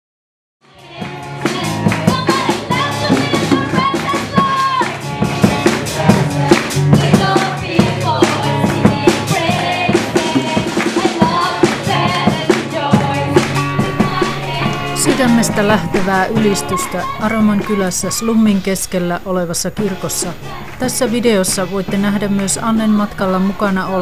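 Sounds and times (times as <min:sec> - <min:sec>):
congregation singing: 0:00.7 - 0:24.0
drum kit beat: 0:01.0 - 0:18.7.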